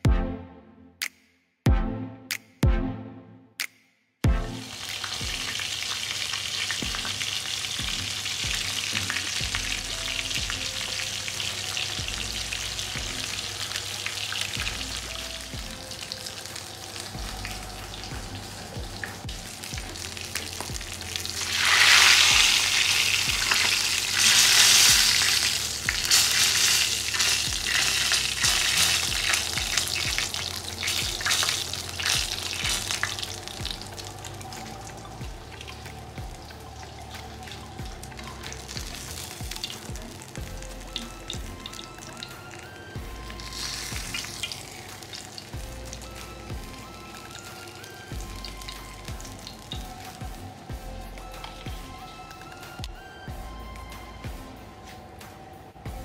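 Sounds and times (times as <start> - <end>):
fish frying in hot oil: 4.6 - 53.0.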